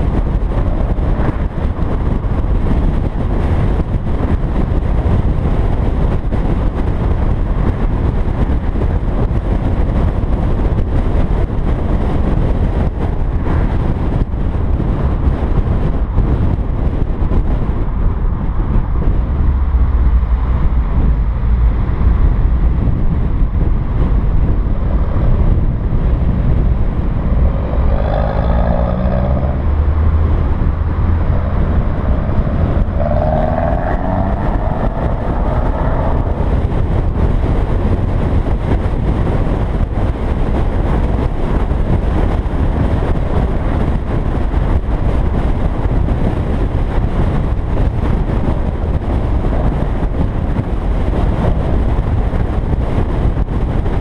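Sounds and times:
road and wind noise: 0.0 - 54.0
car engine revving: 20.6 - 45.2.

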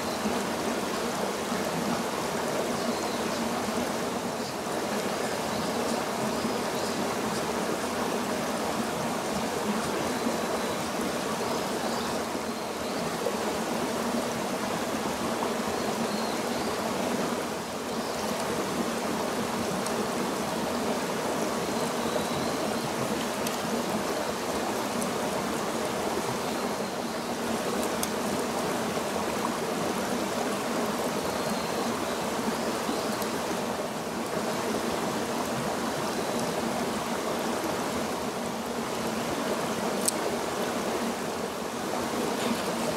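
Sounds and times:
stream rushing over rocks: 0.0 - 42.9.

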